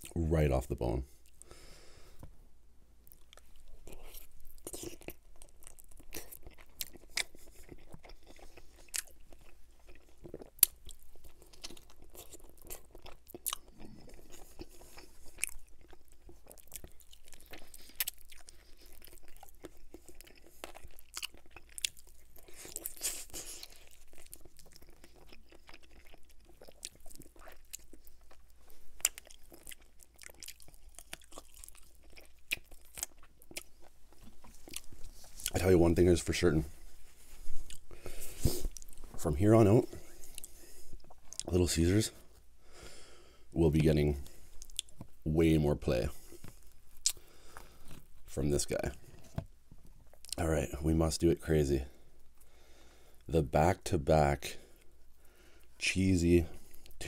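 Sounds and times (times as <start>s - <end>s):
person chewing wet mouth clicks: 47.0s - 47.2s.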